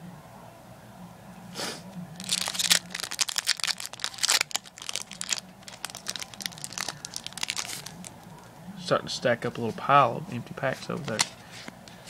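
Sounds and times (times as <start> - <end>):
foil pack crinkling and tearing: 2.2 - 8.4.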